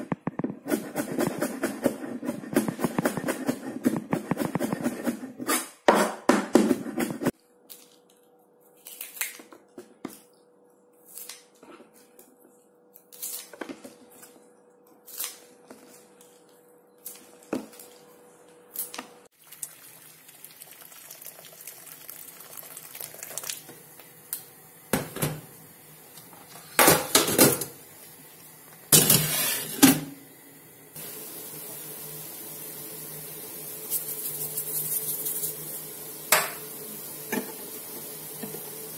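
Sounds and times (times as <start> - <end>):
water at a rolling boil: 19.3 - 38.9.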